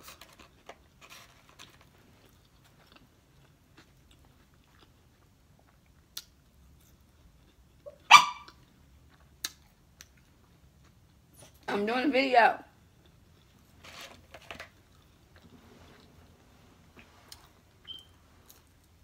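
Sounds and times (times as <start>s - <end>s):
person chewing food: 0.1s - 11.6s, 12.8s - 13.8s, 14.7s - 19.0s
dog barking: 7.9s - 8.5s.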